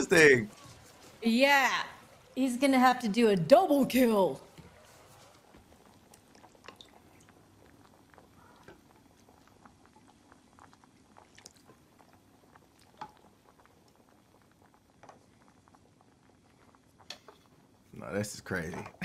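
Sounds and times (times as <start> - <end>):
person chewing: 10.6 - 14.1.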